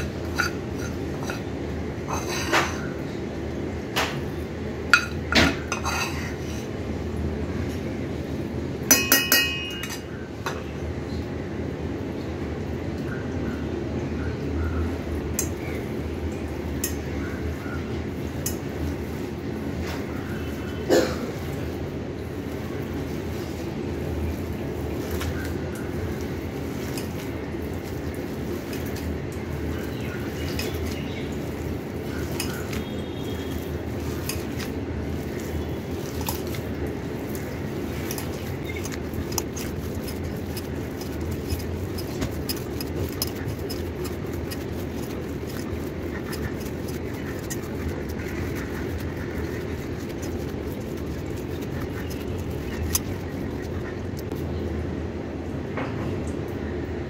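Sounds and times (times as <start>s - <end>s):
hand kneading minced meat: 21.4s - 54.4s.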